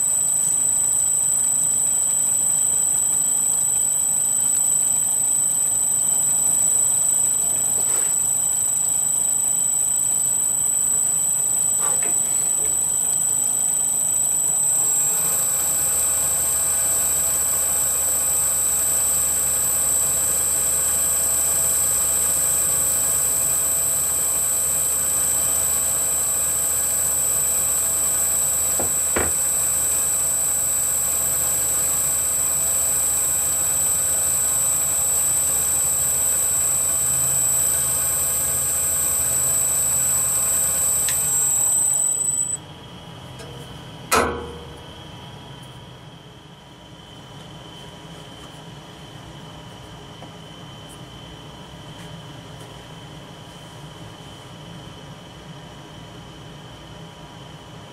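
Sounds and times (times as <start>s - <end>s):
lathe high-pitched whine: 0.0s - 42.7s
motor low hum: 2.0s - 42.6s.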